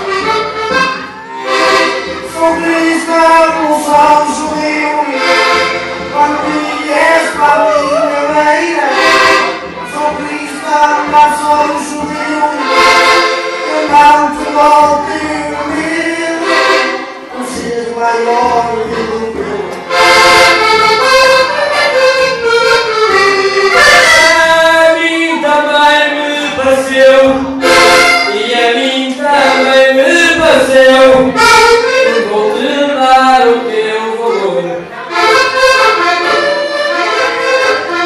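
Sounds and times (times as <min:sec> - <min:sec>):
button accordion playing: 0:00.0 - 0:38.0
man singing into a microphone: 0:02.2 - 0:19.9, 0:23.7 - 0:35.2.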